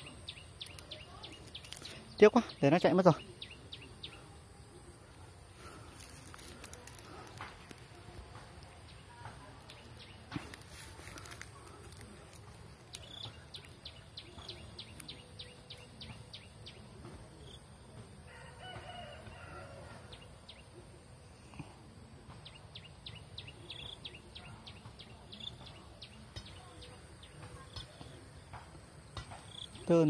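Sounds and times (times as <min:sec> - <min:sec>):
faint rooster crow: 0:18.2 - 0:20.2.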